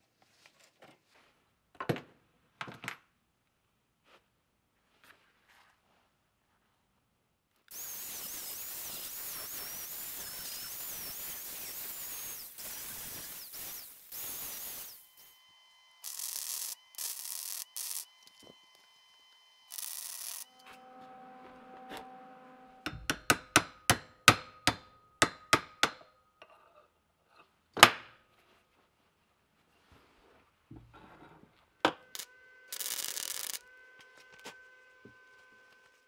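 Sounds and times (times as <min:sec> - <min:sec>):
arc welding bursts: 0:07.7 - 0:20.8, 0:31.9 - 0:34.5
angle grinder cutting steel: 0:07.7 - 0:24.1, 0:31.7 - 0:36.0
hammer blows on metal: 0:20.5 - 0:26.0.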